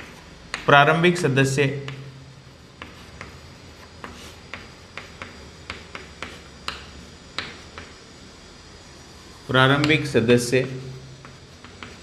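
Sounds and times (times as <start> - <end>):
chalk scratching: 0.0 - 0.7, 1.8 - 6.6, 10.6 - 12.0
chalk tapping on blackboard: 0.0 - 1.0, 1.7 - 8.0, 9.6 - 12.0.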